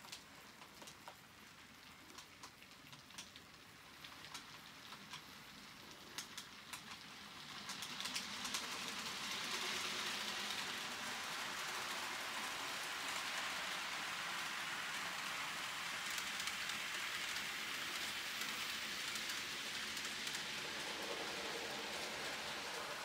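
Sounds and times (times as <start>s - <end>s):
model train wheels rattling on rail: 0.0s - 23.0s.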